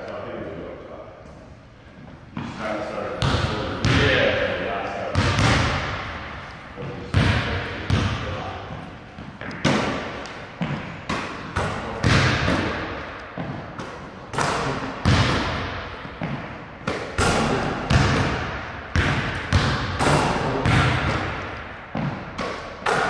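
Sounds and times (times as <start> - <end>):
basketballs bouncing on wooden floor: 3.2 - 4.2, 5.1 - 6.1, 6.8 - 23.0.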